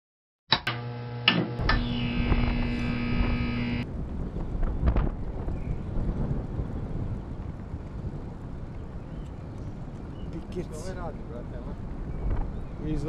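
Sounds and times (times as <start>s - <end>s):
wind rumbling on microphone: 1.6s - 13.0s.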